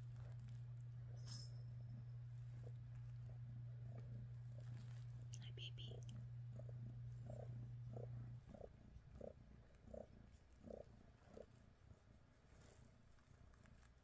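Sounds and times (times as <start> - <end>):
low steady hum: 0.0 - 14.0
cat purring: 1.8 - 14.0.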